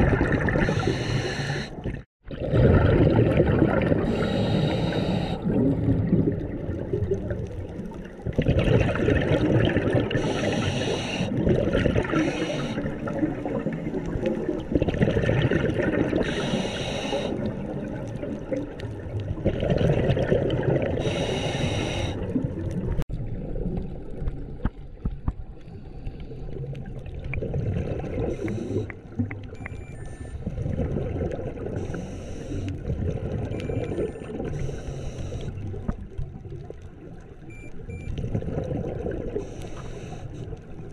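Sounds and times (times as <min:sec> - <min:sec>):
gurgling bubbles underwater: 0:00.0 - 0:40.9
hissing regulator breaths: 0:00.6 - 0:01.8, 0:04.0 - 0:05.5, 0:10.2 - 0:11.4, 0:12.1 - 0:13.0, 0:16.2 - 0:17.5, 0:21.0 - 0:22.3, 0:28.3 - 0:28.9, 0:31.8 - 0:32.8, 0:34.5 - 0:35.6, 0:39.4 - 0:40.5.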